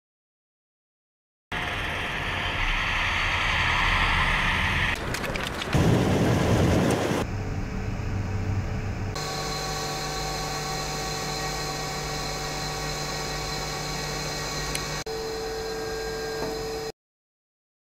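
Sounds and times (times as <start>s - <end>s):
hum with held tones: 5.8s - 16.9s.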